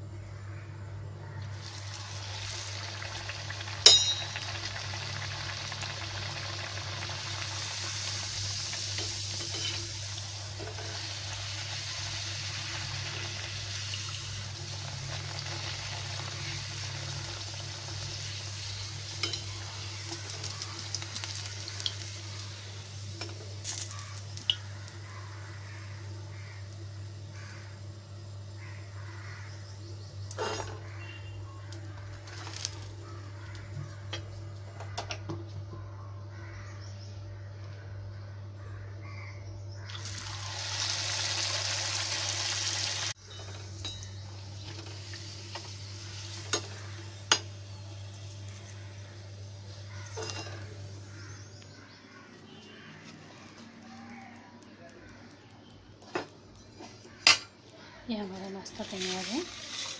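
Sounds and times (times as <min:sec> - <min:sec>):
food sizzling in hot oil: 0:01.5 - 0:28.5, 0:31.9 - 0:33.0, 0:39.8 - 0:51.4, 0:58.6 - 0:59.9.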